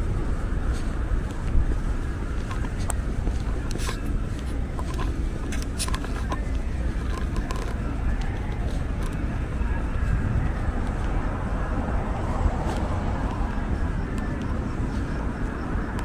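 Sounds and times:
distant traffic rumble: 0.0 - 16.0
light clicks and taps: 2.3 - 10.1.

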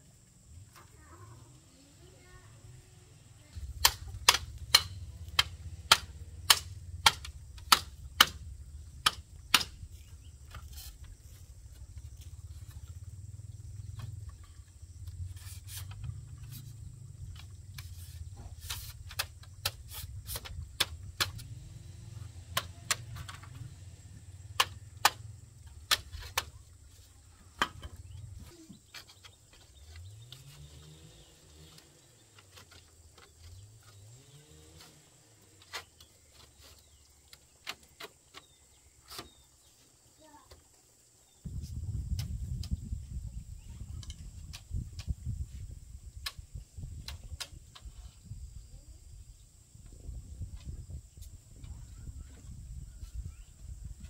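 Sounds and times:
low steady rumble: 2.2 - 28.6
hand tool striking wood: 3.6 - 8.4, 9.0 - 11.0, 17.4 - 21.5, 22.5 - 23.6, 24.5 - 26.6.

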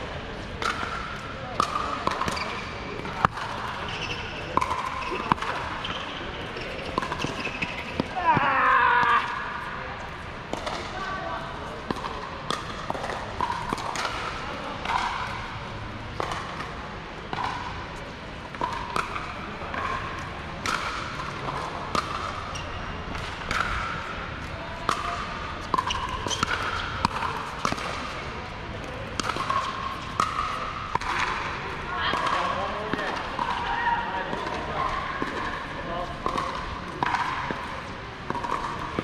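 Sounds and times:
paddles hitting plastic ball: 0.6 - 6.0, 20.6 - 22.4, 24.9 - 28.2, 28.8 - 33.6, 34.2 - 39.0.

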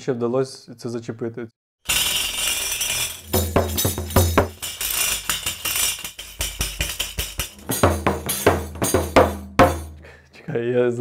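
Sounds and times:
jingles rattling: 1.9 - 9.9
frame drum beats: 2.8 - 10.0.

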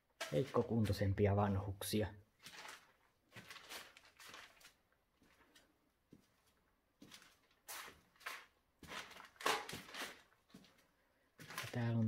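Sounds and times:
footsteps on loose paper: 0.1 - 1.2, 2.4 - 12.0.

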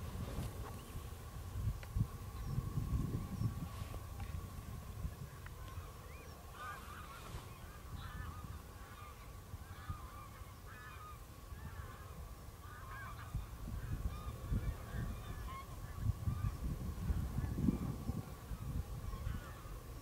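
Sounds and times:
geese honking: 5.6 - 16.6, 18.4 - 20.0.

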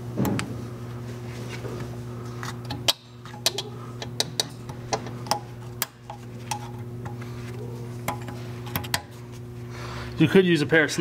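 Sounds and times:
steady low hum: 0.0 - 11.0
screwdriver clicking on metal ring: 2.6 - 7.2, 8.0 - 9.1.

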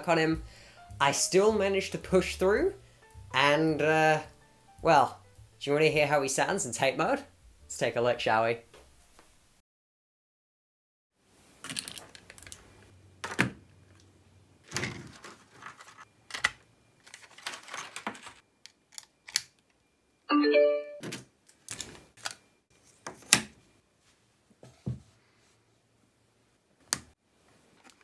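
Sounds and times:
short chime-like tone: 20.3 - 21.0.

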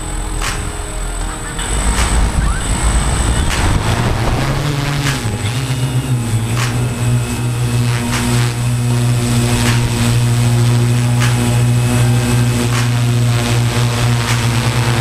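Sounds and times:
drone motors and propellers humming: 0.0 - 15.0.

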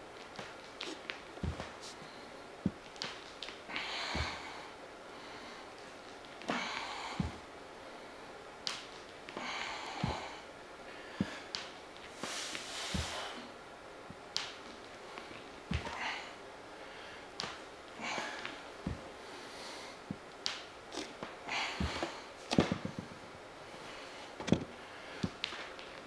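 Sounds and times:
foot thumping on bench: 0.3 - 3.2, 3.8 - 4.6, 6.5 - 7.5, 9.4 - 10.4, 12.8 - 13.3, 15.7 - 16.2, 18.3 - 19.2, 21.0 - 23.1, 24.4 - 25.7
forceful breathing with hissing exhales: 9.3 - 13.6, 18.0 - 20.1.

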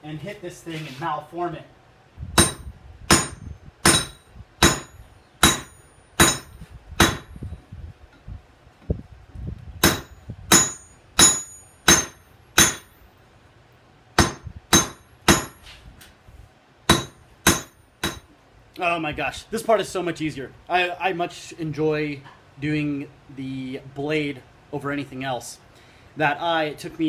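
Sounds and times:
hammer striking metal on anvil: 2.4 - 7.3, 9.8 - 13.0, 14.2 - 15.6, 16.9 - 18.3.

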